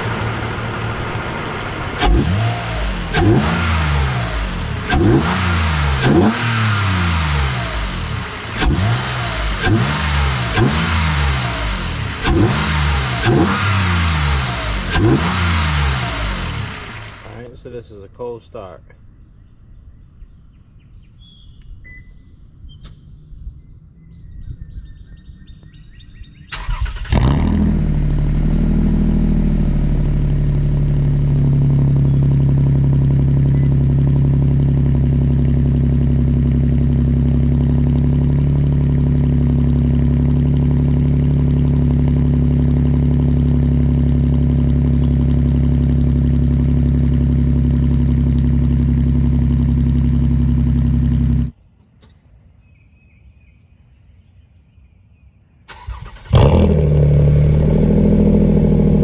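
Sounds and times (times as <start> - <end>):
car engine cranking and idling: 0.0 - 17.5, 26.5 - 52.2, 55.7 - 59.0
faint birds chirping: 17.0 - 27.0, 31.9 - 34.1, 44.8 - 46.2, 51.5 - 56.2.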